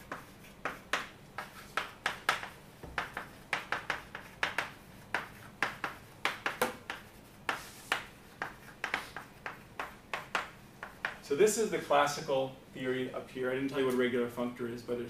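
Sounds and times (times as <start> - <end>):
chalk tapping and scratching on chalkboard: 0.0 - 11.2.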